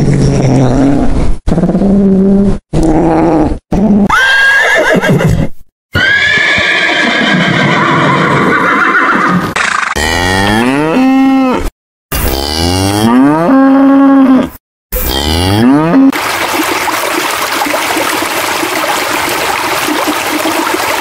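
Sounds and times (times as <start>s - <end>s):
horse whinnying: 4.0s - 9.6s.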